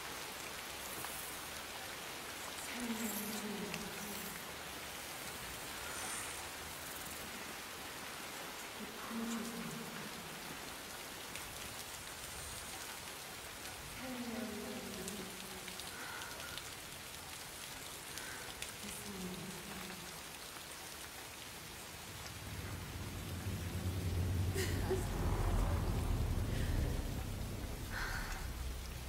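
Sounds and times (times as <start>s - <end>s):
rain pouring on a roof: 0.0s - 29.0s
faint falling tones: 21.9s - 29.0s.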